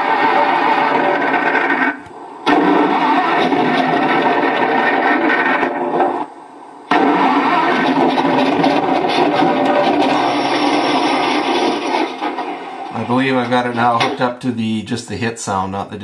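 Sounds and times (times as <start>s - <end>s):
fire burning sound effect: 0.0s - 6.3s, 6.9s - 14.4s.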